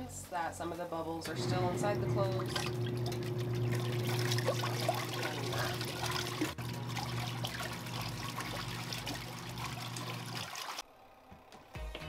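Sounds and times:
washing machine motor humming: 1.2s - 10.8s
water sloshing and splashing: 1.6s - 10.8s.

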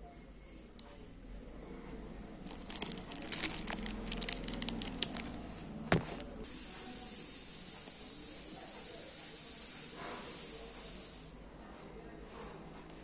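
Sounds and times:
plastic packet crinkling: 2.4s - 6.4s
steady hiss: 6.4s - 11.4s.

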